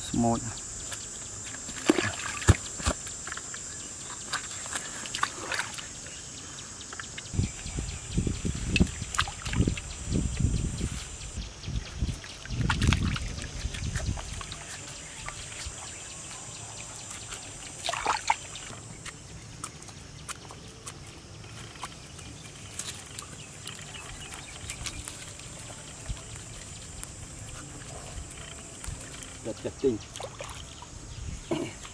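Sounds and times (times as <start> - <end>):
water splashing in steel basin: 17.7 - 18.8.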